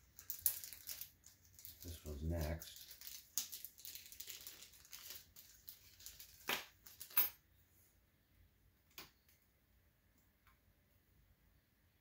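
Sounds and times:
plastic bag crinkling: 0.0 - 7.2.

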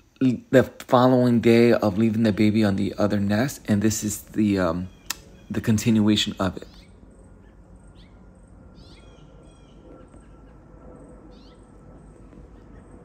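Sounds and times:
low steady background noise: 0.0 - 13.0
songbirds chirping: 0.0 - 13.0.

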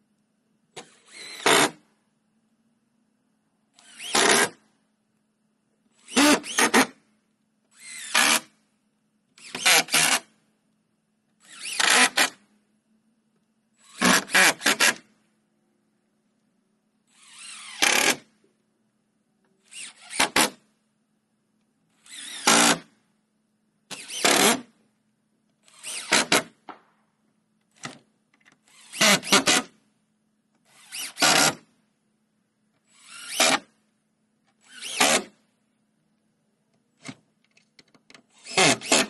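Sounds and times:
cordless drill driving screws: 0.8 - 1.8, 3.8 - 4.6, 6.0 - 7.0, 7.7 - 8.5, 9.4 - 10.3, 11.4 - 12.4, 13.8 - 15.0, 17.1 - 18.3, 19.7 - 20.6, 22.0 - 22.9, 23.9 - 24.7, 25.6 - 26.5, 28.7 - 29.7, 30.7 - 31.6, 32.9 - 33.7, 34.6 - 35.4, 38.3 - 39.0.

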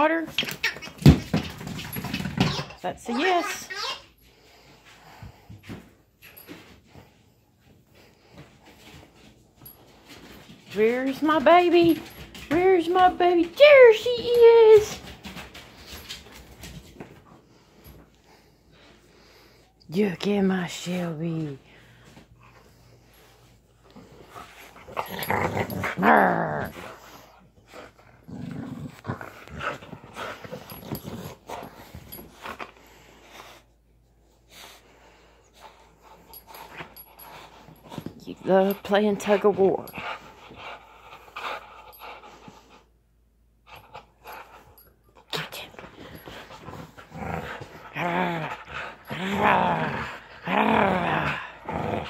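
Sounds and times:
dog growling playfully: 24.8 - 27.0, 27.9 - 31.7, 46.2 - 52.0.

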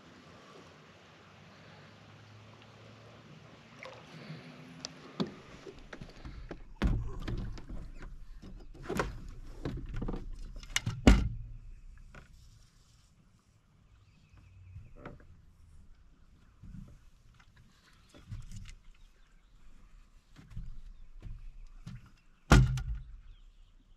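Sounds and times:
knocks and thumps on boat deck: 5.2 - 12.3, 20.4 - 23.3.

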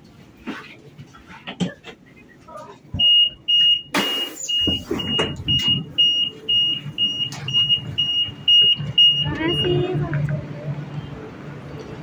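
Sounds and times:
door warning beeps: 3.0 - 9.9.

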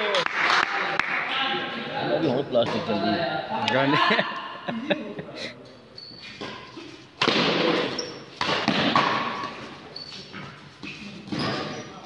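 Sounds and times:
shoes squeaking on court floor: 5.7 - 12.0
racket striking shuttlecock: 7.2 - 9.6.

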